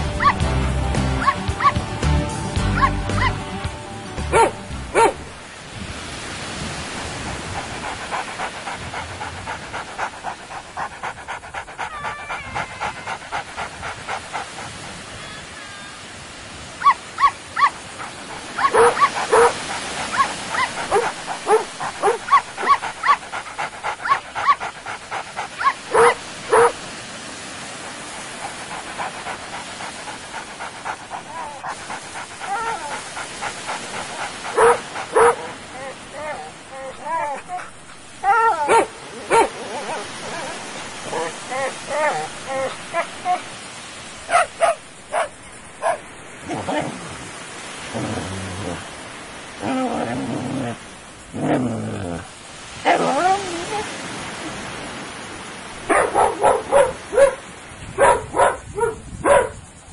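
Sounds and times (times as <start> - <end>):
dog barking: 1.2 - 1.8, 2.8 - 3.4, 4.3 - 5.3, 16.8 - 23.2, 24.0 - 24.7, 25.6 - 26.8, 34.5 - 42.3, 44.3 - 46.0, 55.9 - 59.6
steady hiss: 15.6 - 58.7.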